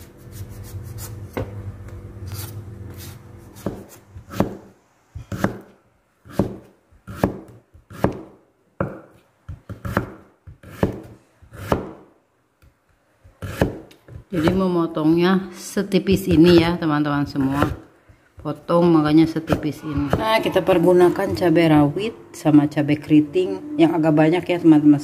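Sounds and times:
low steady hum: 0.0s - 6.2s, 14.1s - 25.0s
knife chopping on wooden board: 3.6s - 12.1s, 13.2s - 14.6s, 16.1s - 17.8s.

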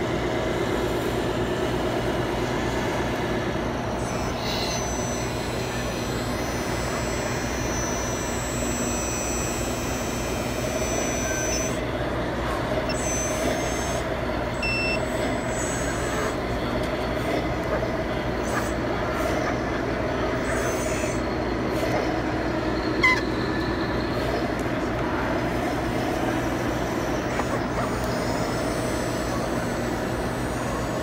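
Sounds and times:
thin high electric whines: 0.0s - 31.0s
toy truck pump whining: 3.8s - 31.0s
crowd chatter: 15.8s - 31.0s.

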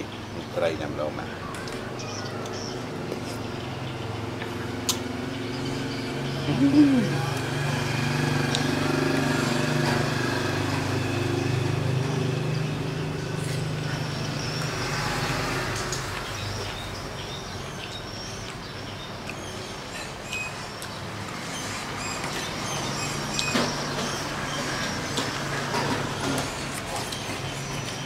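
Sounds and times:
vehicle engine hum: 1.8s - 17.8s.

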